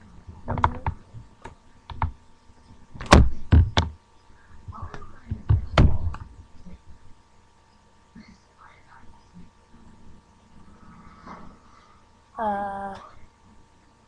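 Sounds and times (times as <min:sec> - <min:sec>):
irregular knocks and thumps: 0:03.0 - 0:04.0, 0:04.7 - 0:06.3.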